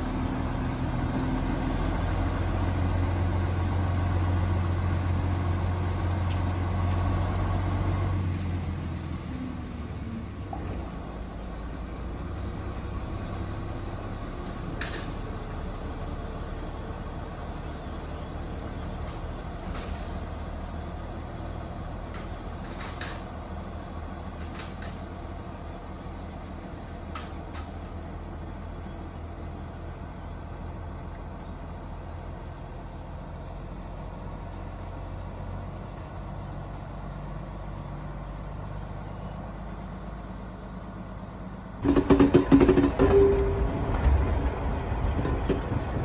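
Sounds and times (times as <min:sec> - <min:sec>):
train rumble and clatter: 0:00.0 - 0:38.1, 0:39.6 - 0:46.0
diesel locomotive engine drone: 0:00.0 - 0:46.0.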